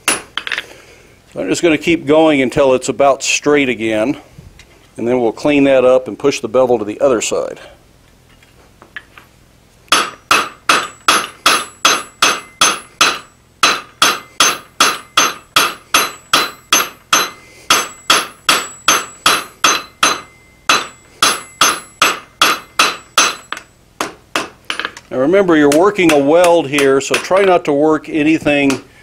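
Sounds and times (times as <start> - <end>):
hammer ringing on hot steel: 9.9 - 24.9, 25.7 - 27.6.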